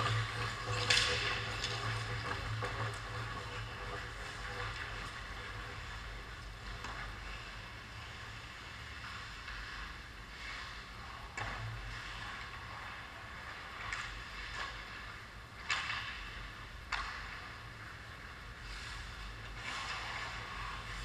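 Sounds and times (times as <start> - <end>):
hockey sticks and puck clacking: 0.0 - 6.0, 12.2 - 18.0, 19.5 - 21.0
steady rink hiss: 3.3 - 15.2, 17.1 - 21.0.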